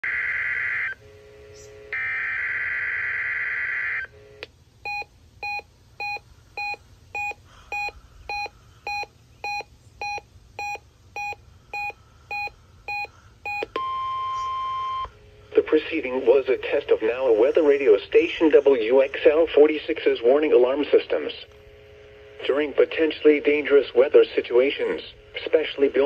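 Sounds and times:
radio alert beeps: 4.9 - 15.8.

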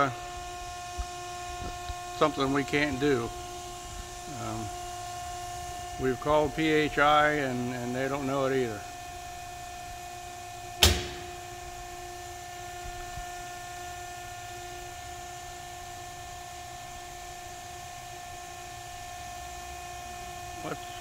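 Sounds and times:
tube bender humming and whining: 0.0 - 21.0
sharp metallic clank ringing: 10.8 - 11.5.

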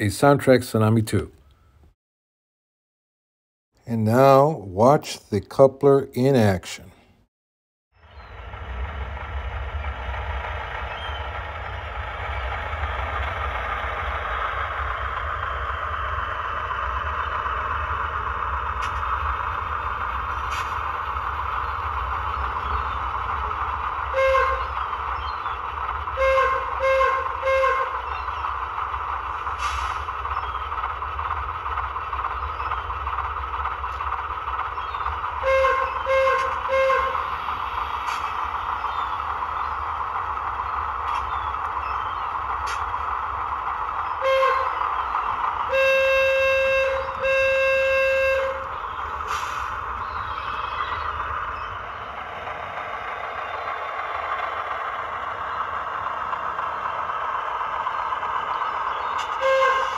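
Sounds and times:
model locomotive running hum: 8.0 - 59.9
locomotive horn toots: 24.0 - 24.9, 26.0 - 28.1, 35.3 - 37.4, 44.1 - 44.9, 45.6 - 49.6, 59.2 - 59.9.

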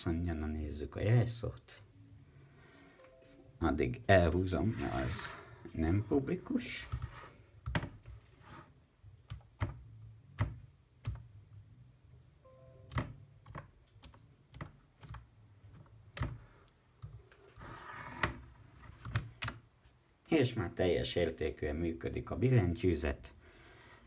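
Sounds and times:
faint tone: 2.8 - 3.7, 12.4 - 12.9.

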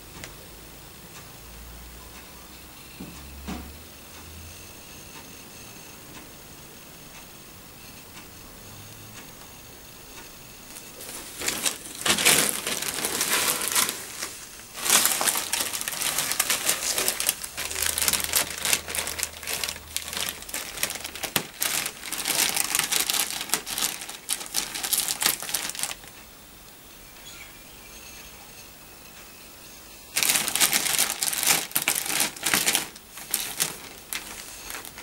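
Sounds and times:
plastic bag crinkling: 10.7 - 26.2, 30.2 - 35.0.

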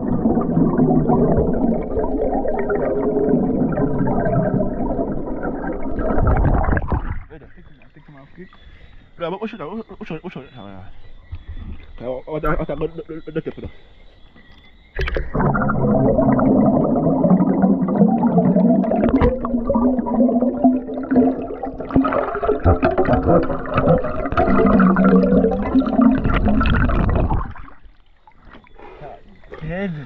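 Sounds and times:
muffled underwater river rushing: 0.0 - 8.9, 15.0 - 30.0.

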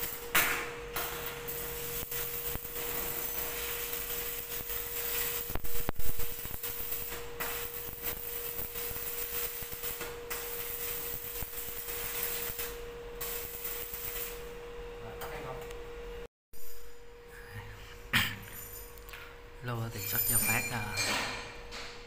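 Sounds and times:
arc welding hiss: 0.0 - 14.5.

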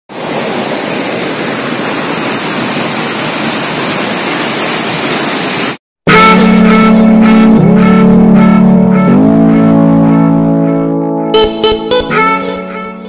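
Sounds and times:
water rushing over rocks: 0.1 - 5.8.

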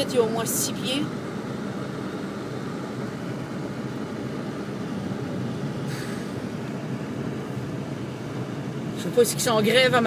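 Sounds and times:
car engine and tyre noise: 0.0 - 10.0
brief hiss: 5.9 - 6.4.

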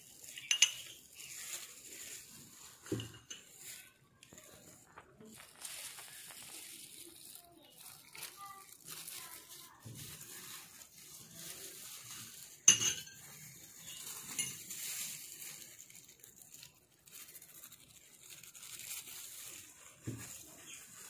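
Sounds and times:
clink of metal bowl: 12.7 - 13.2.

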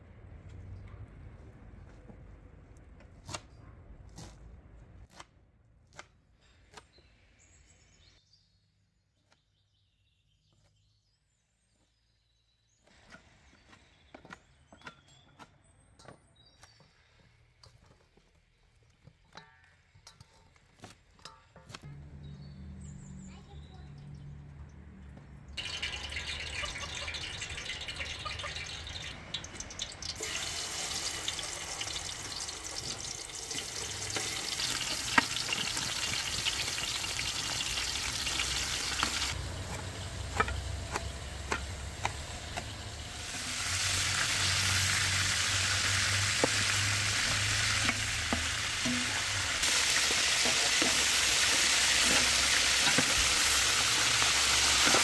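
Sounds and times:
chicken sizzling in metal pot: 25.6 - 55.0.

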